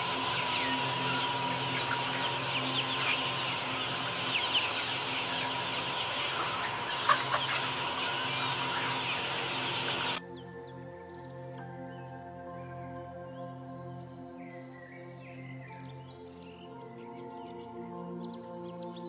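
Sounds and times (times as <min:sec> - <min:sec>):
chickens clucking: 0:00.0 - 0:10.2
steady hum: 0:00.0 - 0:10.2.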